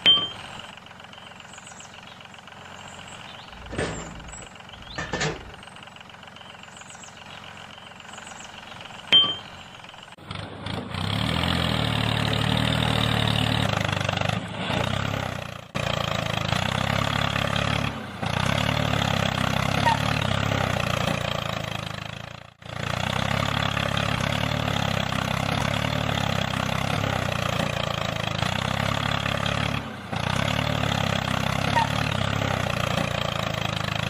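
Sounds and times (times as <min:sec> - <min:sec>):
tractor engine running: 0:00.0 - 0:34.0.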